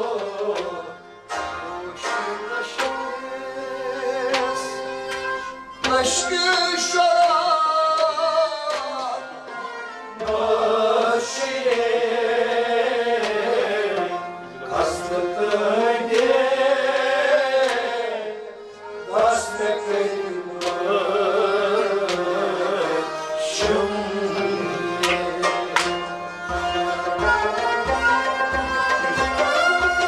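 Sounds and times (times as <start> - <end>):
man singing: 0.0 - 5.0, 5.8 - 9.5, 14.7 - 26.0
harmonium: 0.0 - 30.0.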